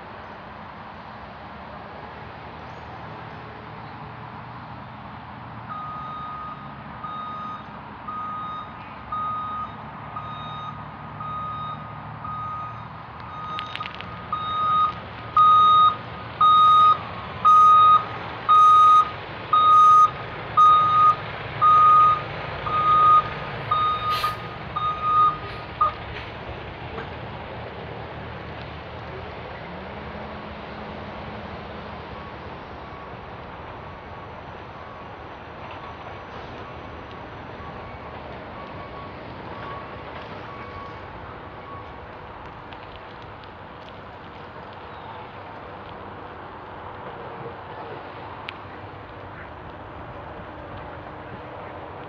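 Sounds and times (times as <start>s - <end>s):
truck reversing alarm beeping: 5.7s - 26.2s, 34.6s - 42.1s.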